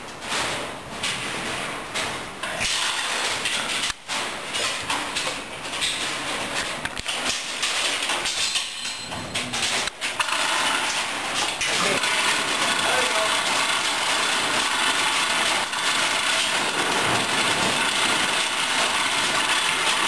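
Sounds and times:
dense noisy background: 0.0s - 14.9s
metal parts knocking and clattering: 0.1s - 20.0s.

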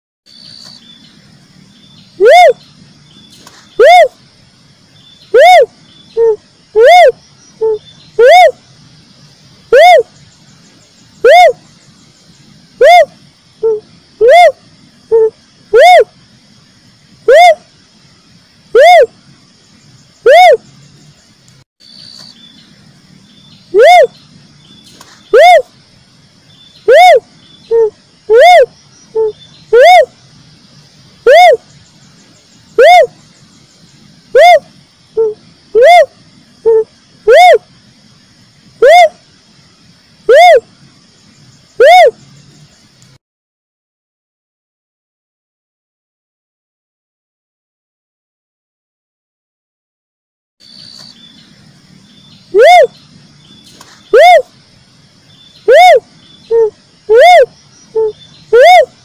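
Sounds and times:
cuckoo-dove whooping call: 2.2s - 2.6s, 3.7s - 4.2s, 5.2s - 8.6s, 9.7s - 10.2s, 11.2s - 11.6s, 12.8s - 16.2s, 17.2s - 17.7s, 18.7s - 19.2s, 20.2s - 20.7s, 23.7s - 24.2s, 25.0s - 25.7s, 26.8s - 30.2s, 31.2s - 31.7s, 32.8s - 33.2s, 34.3s - 37.7s, 38.8s - 39.2s, 40.3s - 40.7s, 41.8s - 42.2s, 52.5s - 53.0s, 53.8s - 54.5s, 55.5s - 59.0s.

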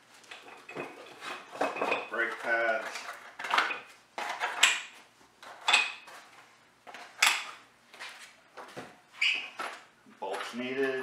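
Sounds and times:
cardboard rustling and parts clattering: 0.1s - 4.8s.

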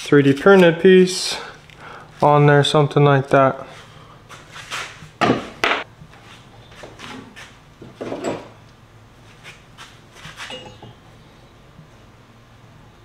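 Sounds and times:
tools knocking and rattling: 7.8s - 8.6s, 10.5s - 11.0s
metal clank: 10.4s - 11.0s.

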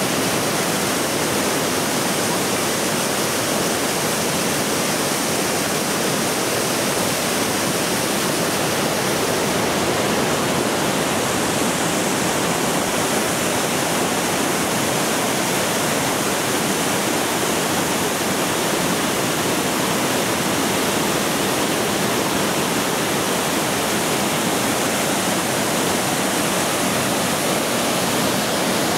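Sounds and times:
stream rushing over boulders: 0.0s - 28.9s.

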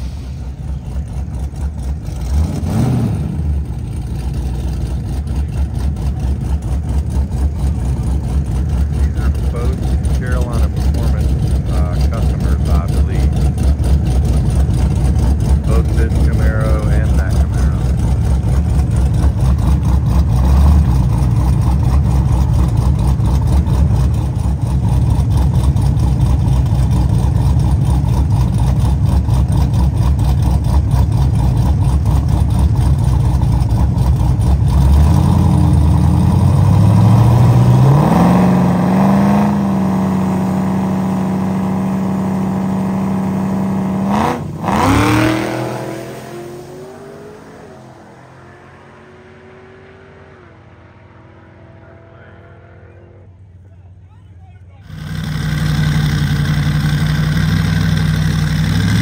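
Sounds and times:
drag car engines revving: 0.0s - 59.0s.

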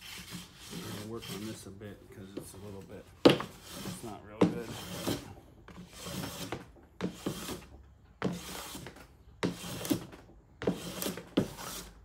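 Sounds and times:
hand plane hissing strokes: 0.0s - 1.8s, 2.4s - 12.0s
plane knocking on wood: 2.3s - 11.8s.

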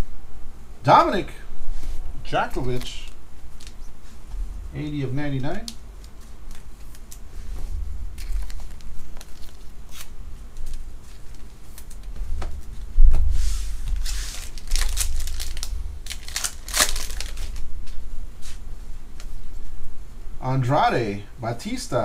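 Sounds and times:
foil wrapper crackling: 2.6s - 4.1s, 5.3s - 7.4s, 8.1s - 12.9s, 13.8s - 18.0s.

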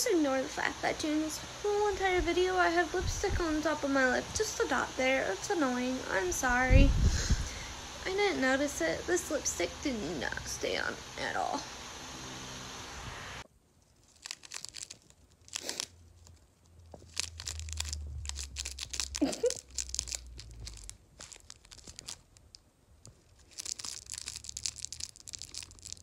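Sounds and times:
foil ball crackling: 13.4s - 26.0s.

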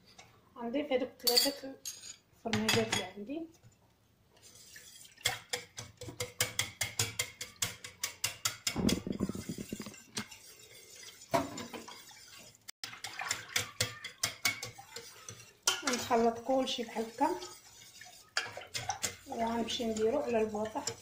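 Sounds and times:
whisk swishing: 4.4s - 21.0s
whisk clinking against pan: 4.5s - 21.0s.

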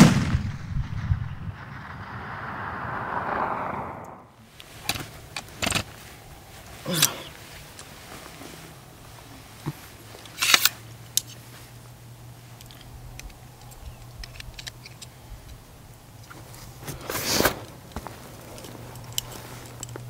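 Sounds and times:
clothing rustles: 4.6s - 11.8s, 16.3s - 20.0s
small handling clicks: 10.2s - 11.4s, 12.6s - 15.6s, 18.5s - 20.0s.

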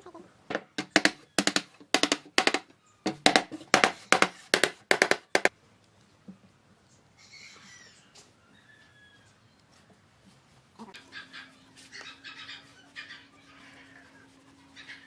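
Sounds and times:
mallet knocking on wood: 0.5s - 5.5s.

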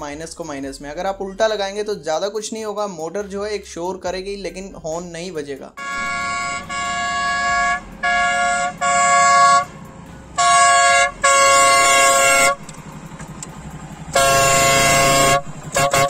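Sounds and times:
electric air horn blasts: 5.8s - 12.7s, 14.1s - 16.0s.

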